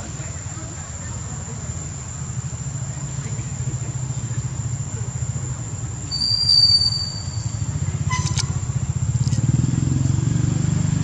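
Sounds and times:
high insect drone: 0.0 - 11.0
low motor rumble: 0.0 - 11.0
high whistle: 6.1 - 8.4.

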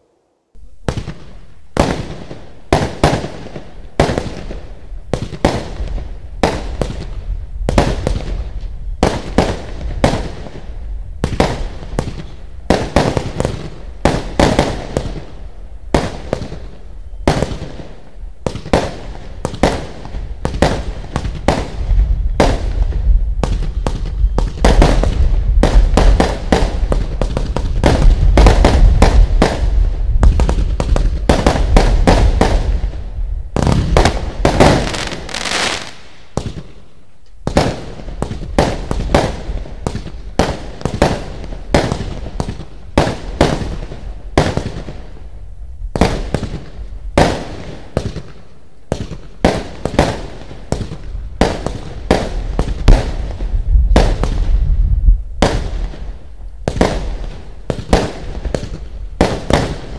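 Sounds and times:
low firework rumble: 4.0 - 36.8, 49.0 - 59.9
firework launch bangs and bursts: 9.0 - 16.7, 17.3 - 33.0, 33.6 - 36.8, 45.9 - 54.6, 55.4 - 59.9.

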